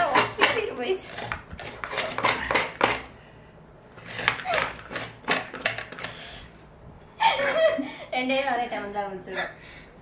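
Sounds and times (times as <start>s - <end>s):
coconut scraping on grater: 0.0s - 3.1s, 4.0s - 6.2s.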